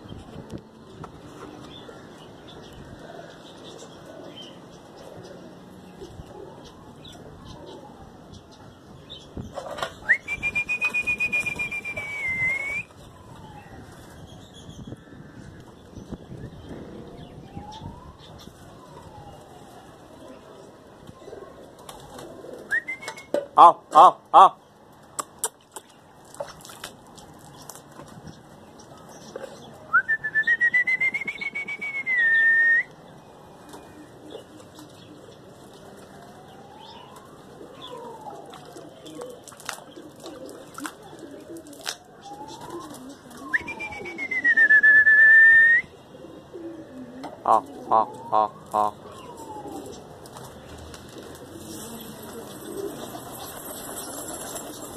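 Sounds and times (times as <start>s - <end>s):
outdoor background noise: 0.0s - 54.9s
pigeons cooing: 0.9s - 8.1s, 20.2s - 23.4s, 33.7s - 36.8s, 37.5s - 44.9s, 45.8s - 54.9s
faint siren: 1.6s - 23.4s, 29.8s - 54.9s
loud whistle: 10.1s - 12.9s, 43.6s - 45.9s.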